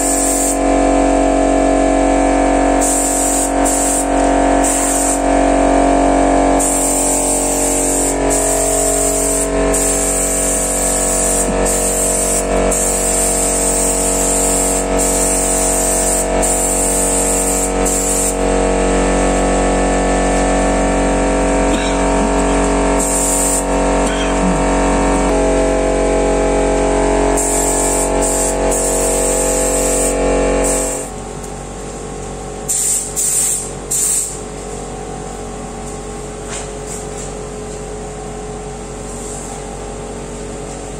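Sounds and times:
spray gun hissing: 0.0s - 0.6s, 2.8s - 5.2s, 6.6s - 18.4s, 23.0s - 23.8s, 27.4s - 31.1s
air compressor humming: 0.0s - 40.9s.

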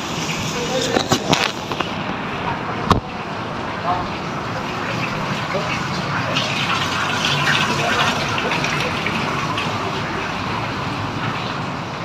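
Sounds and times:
fountain water splashing: 0.0s - 12.0s.

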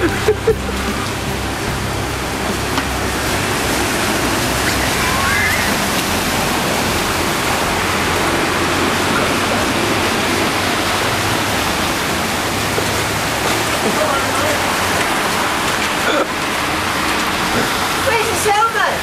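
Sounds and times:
heavy rain and rushing floodwater: 0.0s - 19.0s.

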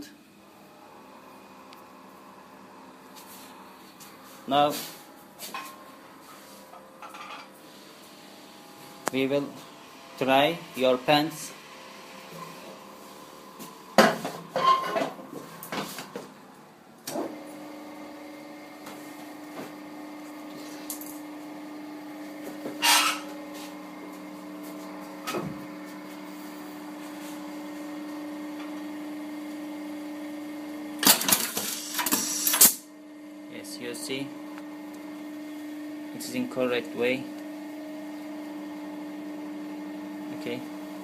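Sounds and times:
machine humming: 0.0s - 14.6s.

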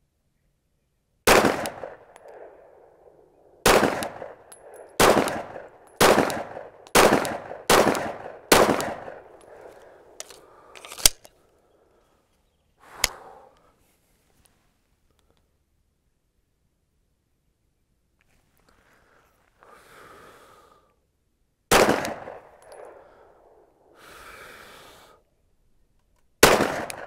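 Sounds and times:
pistol shots with echo: 1.3s - 10.2s, 21.7s - 23.6s, 26.4s - 27.0s
short sharp cracks: 26.1s - 27.0s.

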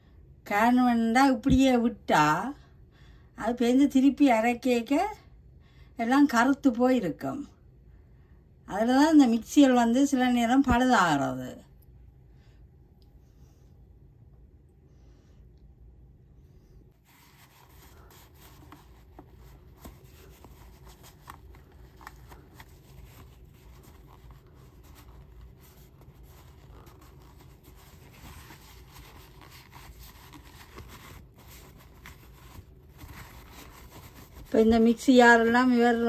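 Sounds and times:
paper towel rubbing in plastic: 17.0s - 36.0s.

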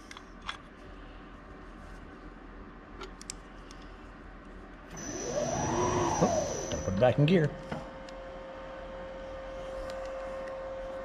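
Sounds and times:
milling machine whine: 4.9s - 8.8s.

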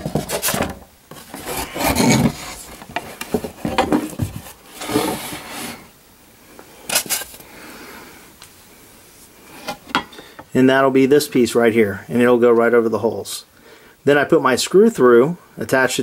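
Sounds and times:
rubbing and scraping of packaging: 0.0s - 6.0s, 6.8s - 7.4s.

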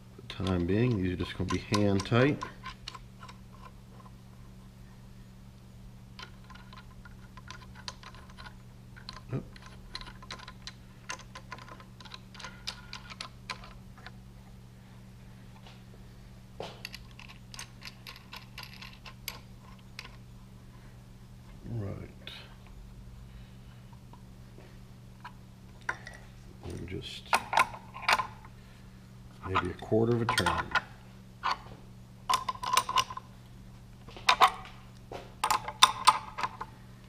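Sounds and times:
steady low hum: 0.0s - 37.0s
metal nuts clicking and rattling: 0.3s - 3.7s, 6.2s - 14.2s, 16.8s - 20.2s, 25.2s - 28.5s, 29.4s - 31.6s, 32.3s - 33.3s, 34.2s - 34.7s, 35.4s - 36.7s.

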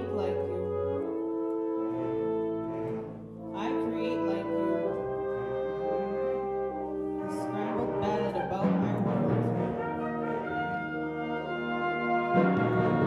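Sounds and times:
wind ensemble holding chords: 0.0s - 13.0s.

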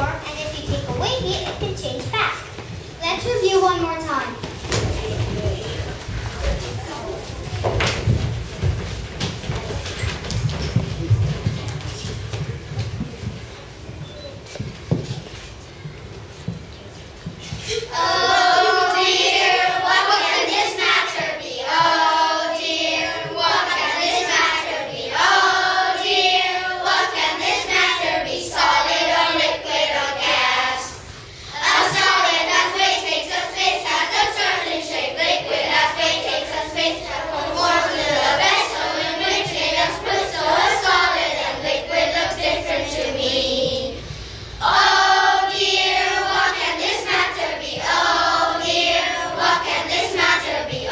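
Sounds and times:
children singing in unison: 17.6s - 50.9s.

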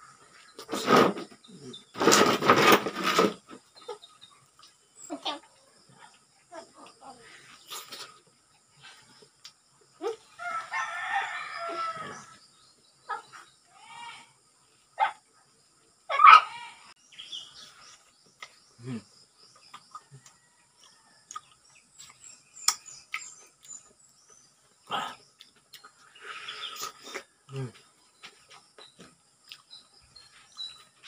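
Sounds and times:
rooster crowing: 10.4s - 12.4s
chicken clucks and clicks: 19.5s - 24.0s.

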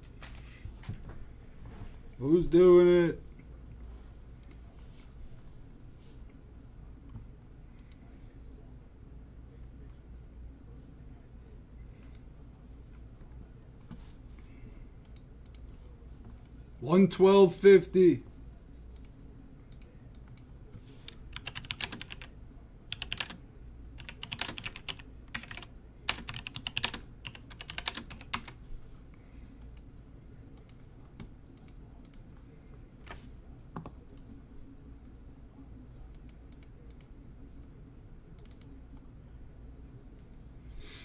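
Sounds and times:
typing on computer keyboard: 21.1s - 22.3s, 22.9s - 23.4s, 24.0s - 28.6s.

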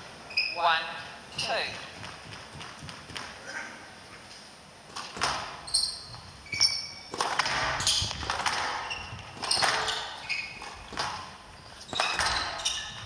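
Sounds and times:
shoe squeaks on court: 5.6s - 10.9s, 11.6s - 13.0s
squash ball knocks: 7.1s - 13.0s.

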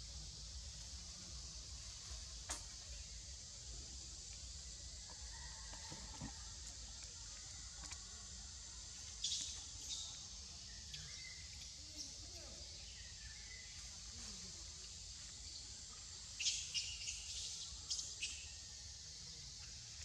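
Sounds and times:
high insect drone: 0.0s - 20.0s
faint bird chirps: 5.3s - 20.0s.

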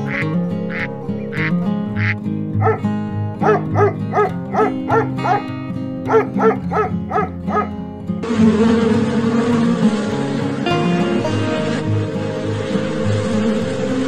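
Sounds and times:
quack-like calls: 0.0s - 5.4s
background music: 0.0s - 14.0s
puppy yapping: 2.6s - 7.8s.

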